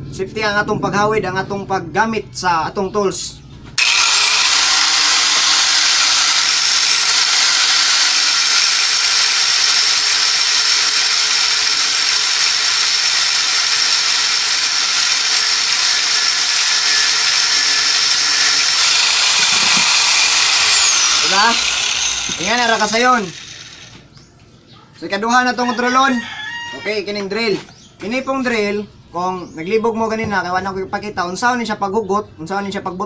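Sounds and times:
disc grinding through metal pipe: 0:03.8 - 0:24.0
angle grinder whining: 0:03.8 - 0:24.1.

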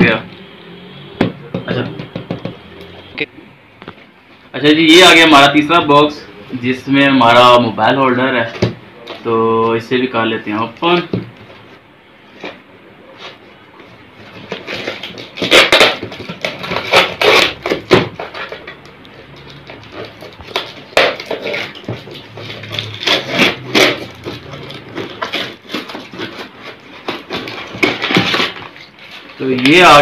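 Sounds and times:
tape and cardboard tearing: 0:14.2 - 0:30.0.

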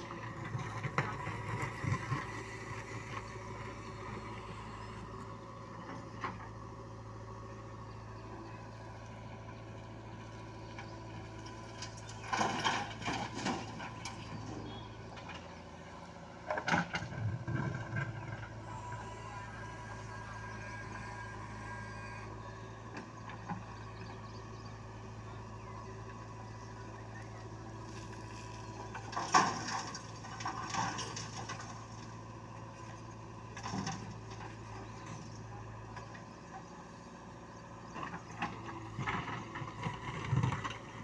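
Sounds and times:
diesel engine running: 0:00.0 - 0:41.0.

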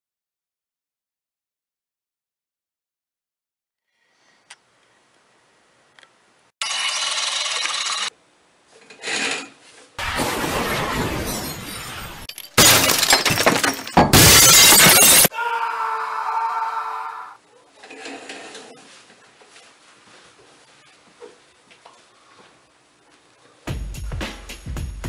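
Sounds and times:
glass breaking and shattering: 0:10.0 - 0:15.3.

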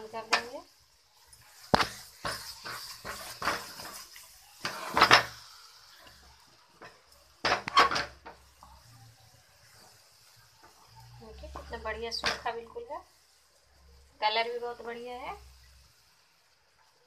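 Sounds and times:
wooden spatula scraping metal pan: 0:01.4 - 0:06.2, 0:06.8 - 0:08.4.

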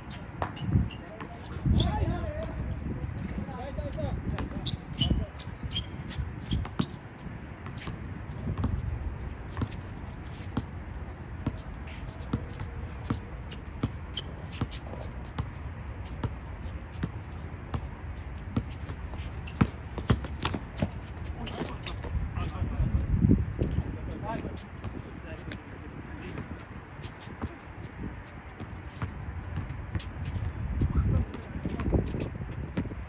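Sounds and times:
players' feet on court: 0:00.0 - 0:33.0
basketball bouncing: 0:05.8 - 0:07.0, 0:07.6 - 0:08.9, 0:12.3 - 0:15.6, 0:18.5 - 0:22.2.

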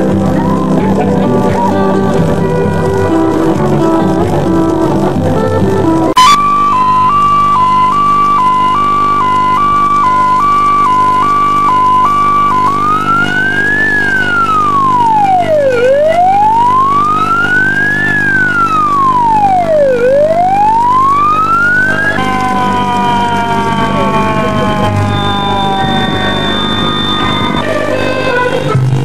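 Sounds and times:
steady low drone: 0:00.0 - 0:28.5
tones gliding downward: 0:06.1 - 0:28.6
wail siren rising and falling: 0:06.2 - 0:28.6.

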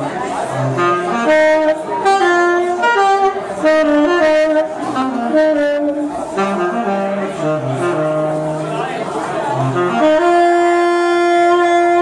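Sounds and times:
saxophone melody: 0:00.0 - 0:12.0
jazz quartet playing: 0:00.5 - 0:12.0.

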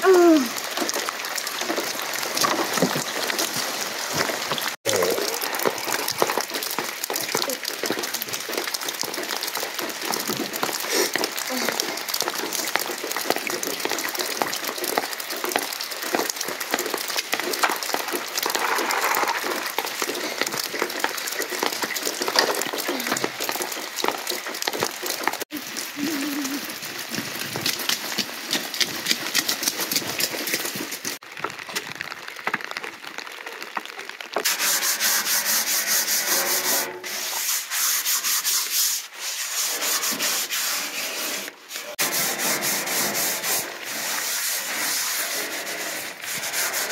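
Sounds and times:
brush scrubbing a bathtub: 0:34.4 - 0:46.9.

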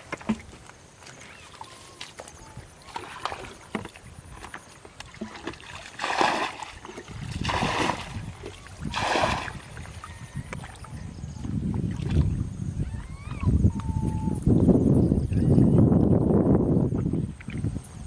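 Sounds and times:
thrown water splashing: 0:00.0 - 0:10.8.

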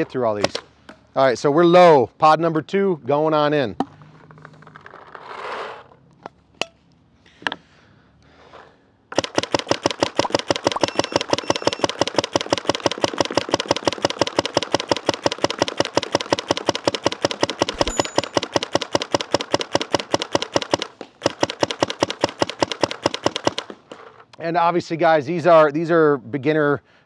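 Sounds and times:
paintball marker rapid shots: 0:09.1 - 0:23.8.

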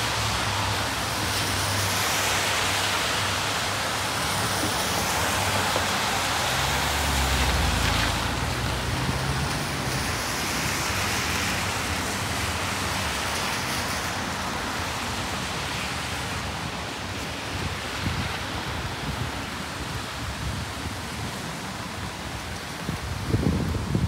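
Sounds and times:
rain on street: 0:00.0 - 0:24.0
traffic: 0:00.0 - 0:24.0
vehicle passing: 0:05.4 - 0:09.9.

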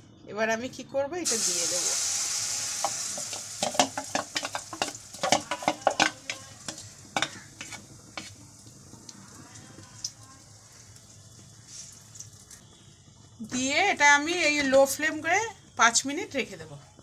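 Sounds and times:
batter sizzling in hot oil: 0:01.2 - 0:17.0
spoon scraping bowl: 0:03.6 - 0:08.5.

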